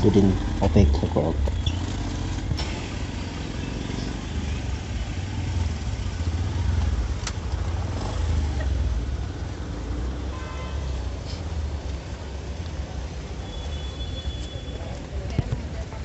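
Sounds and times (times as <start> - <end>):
car and motorcycle engines idling: 0.0 - 10.2.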